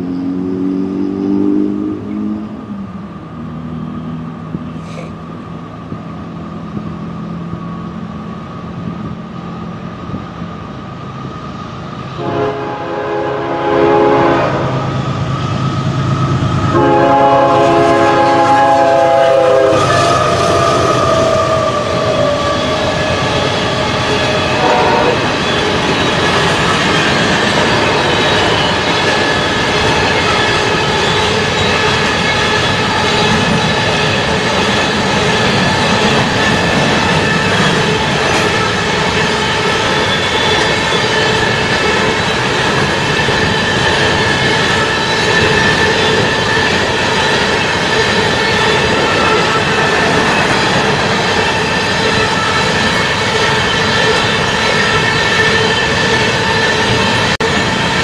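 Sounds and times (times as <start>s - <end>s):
diesel train engine hum: 0.0s - 58.0s
railcars rumbling and clacking: 0.0s - 58.0s
train horn blasts: 12.2s - 15.0s, 16.6s - 22.2s, 24.5s - 25.4s.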